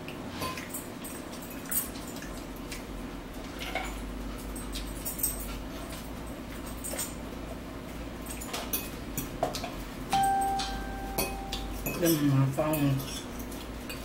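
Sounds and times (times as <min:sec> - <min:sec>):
low hum: 0:10.2 - 0:12.0
fork tapping on ceramic bowl: 0:10.6 - 0:12.0.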